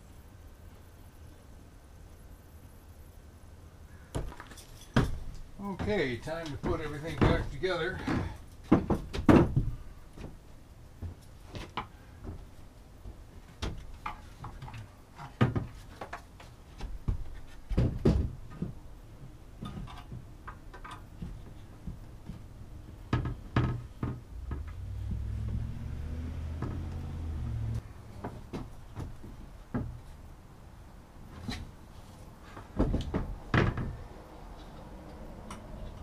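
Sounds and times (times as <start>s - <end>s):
wood knocking against van wall: 6.6s - 10.3s, 17.0s - 18.8s, 32.7s - 34.0s
low steady rumble: 21.4s - 31.2s.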